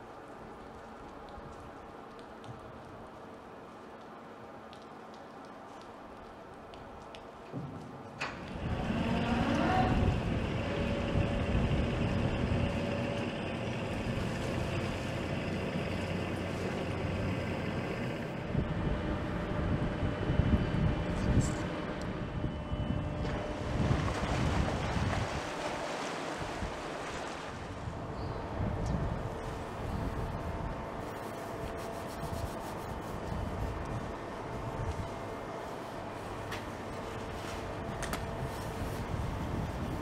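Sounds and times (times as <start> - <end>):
faint mechanical hum: 0.0 - 40.0
wind buffeting microphone: 8.5 - 15.2, 18.3 - 31.2, 32.2 - 35.5, 37.2 - 40.0.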